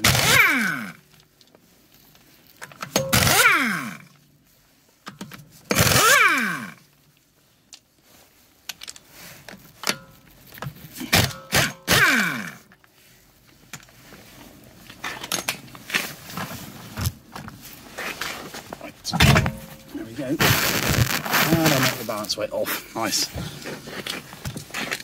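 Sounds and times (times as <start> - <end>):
pneumatic impact wrench hammering: 0.0 - 1.0, 2.8 - 4.1, 5.7 - 6.8, 11.1 - 12.7.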